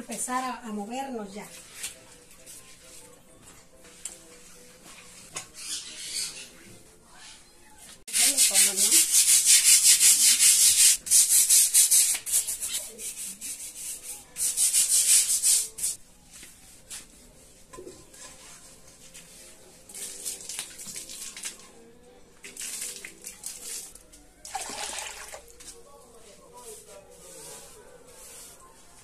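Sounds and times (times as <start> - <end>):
brush scrubbing stone: 8.1 - 16.0, 26.6 - 29.0
water splashing on concrete: 20.0 - 21.7, 22.4 - 25.5.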